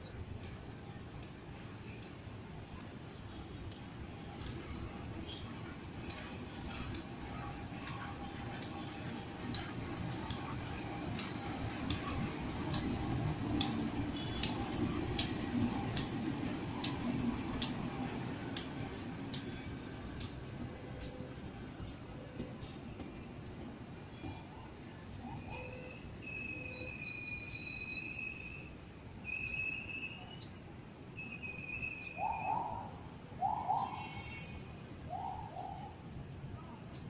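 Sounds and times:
diesel locomotive rumble: 3.8s - 29.9s.

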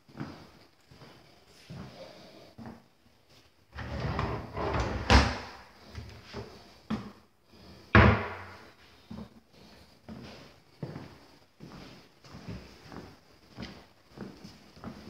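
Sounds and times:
cabinet doors rubbing and rattling: 3.8s - 5.6s, 7.9s - 8.6s
cabinet door banging: 8.0s - 8.6s.

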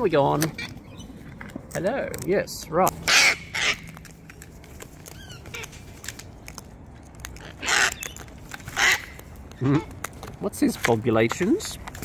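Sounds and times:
cockatoos screeching: 3.0s - 4.1s, 7.4s - 9.9s.

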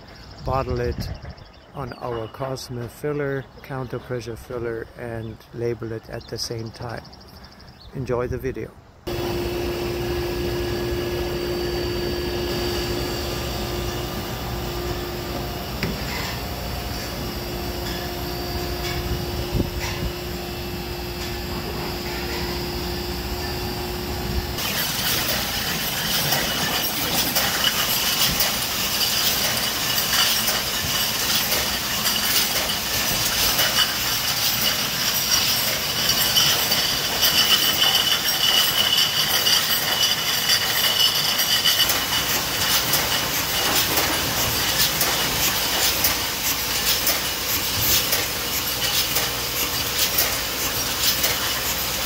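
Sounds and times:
machine hum with held tone: 9.1s - 44.8s.

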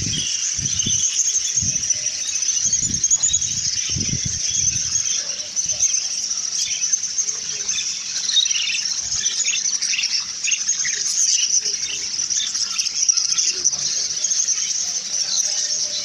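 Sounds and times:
budgerigars chattering: 0.0s - 16.0s.

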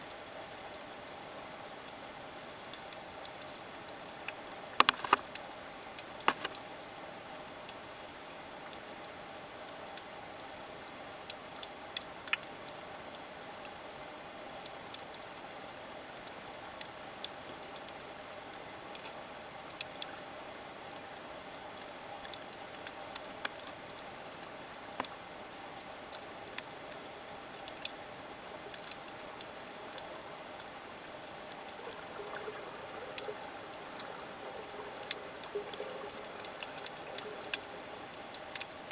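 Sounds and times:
faint hum: 0.1s - 38.9s
sharp clicks and crackles: 2.6s - 6.7s, 28.7s - 38.9s.

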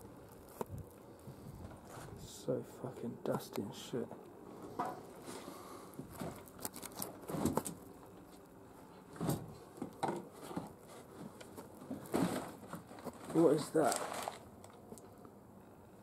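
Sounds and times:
papers rustling: 6.1s - 8.4s, 9.1s - 15.0s.

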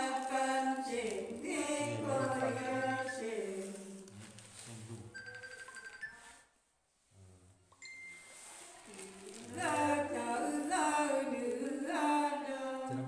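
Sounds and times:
woman singing unaccompanied: 0.0s - 4.0s, 9.3s - 13.0s.

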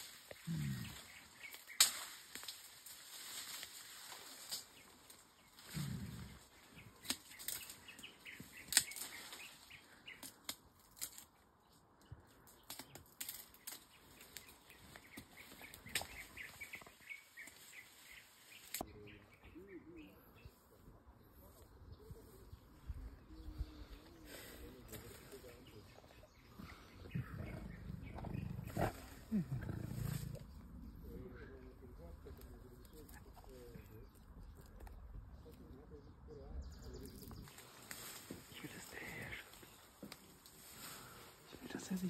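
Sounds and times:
twigs snapping: 0.0s - 17.7s, 37.0s - 41.2s
vegetation rustling: 0.0s - 18.8s, 21.5s - 35.8s, 37.0s - 42.0s
faint bird chirps: 13.7s - 40.1s
low rumbling: 21.3s - 39.9s.

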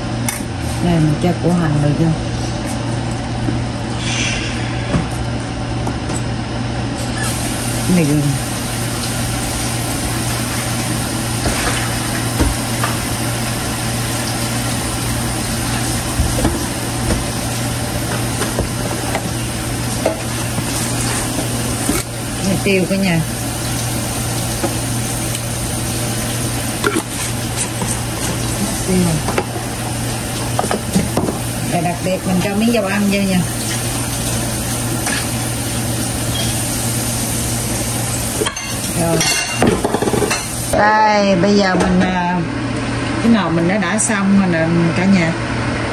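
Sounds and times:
machine hum with hiss: 3.8s - 6.2s, 6.9s - 40.8s.

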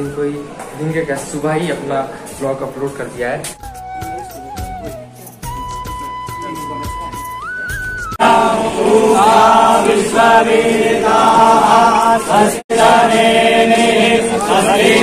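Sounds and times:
group singing in unison: 8.2s - 15.0s.

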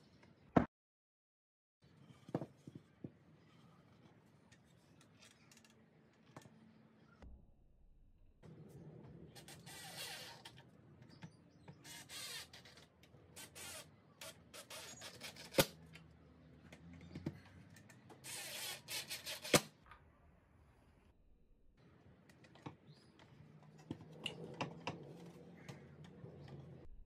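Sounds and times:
wood scraping rasps: 11.8s - 15.8s.

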